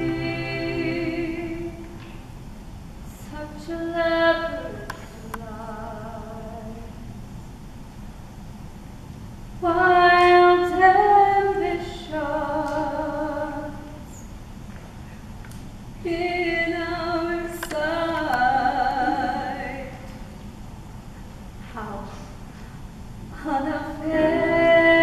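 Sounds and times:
woman singing: 0:00.0 - 0:01.9, 0:03.2 - 0:07.1, 0:09.6 - 0:14.1, 0:16.0 - 0:20.1, 0:23.4 - 0:25.0.

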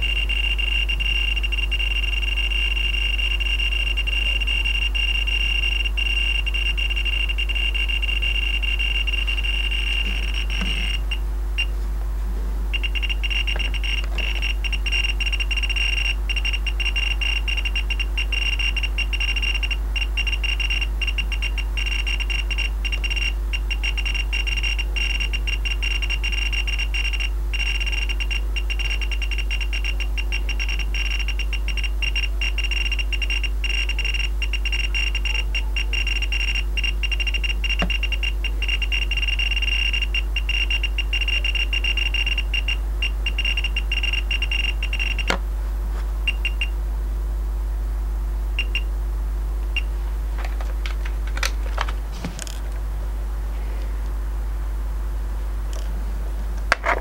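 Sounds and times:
high-pitched dosimeter beeps: 0:00.0 - 0:11.8, 0:12.7 - 0:45.4, 0:46.3 - 0:46.8, 0:48.6 - 0:48.9.

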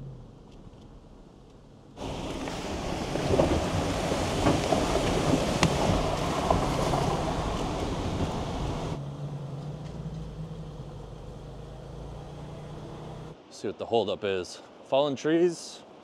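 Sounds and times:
low engine hum: 0:02.0 - 0:13.4
tyres splashing through creek: 0:02.0 - 0:13.4
stones clicking under tyres: 0:03.2 - 0:08.4.

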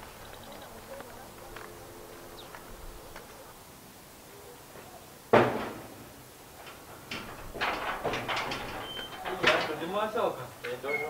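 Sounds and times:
metal gate bang with rattle: 0:05.3 - 0:10.2.

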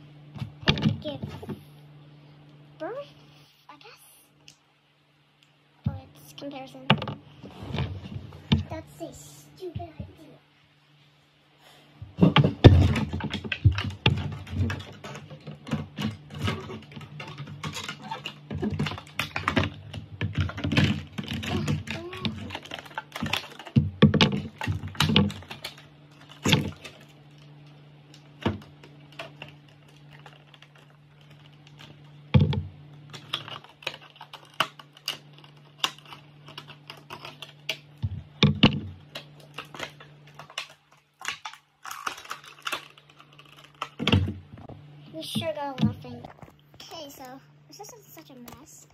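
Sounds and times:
steady low hum: 0:00.0 - 0:48.9
small hard objects clicking: 0:33.0 - 0:44.2.

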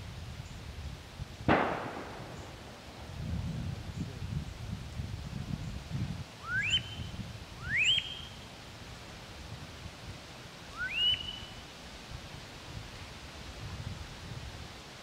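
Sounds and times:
wood duck squealing calls: 0:06.4 - 0:07.0, 0:07.6 - 0:08.4, 0:10.8 - 0:11.6.

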